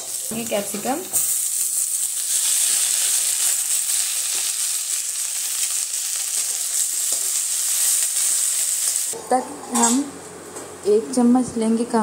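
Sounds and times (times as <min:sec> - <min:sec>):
vegetables sizzling in hot fat: 0:00.0 - 0:09.2.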